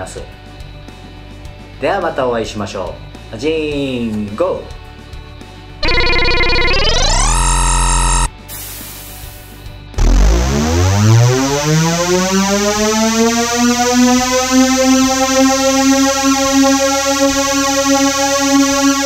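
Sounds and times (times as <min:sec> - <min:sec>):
synthesizer tone sweeping up: 0:05.8 - 0:08.3, 0:10.0 - 0:19.0.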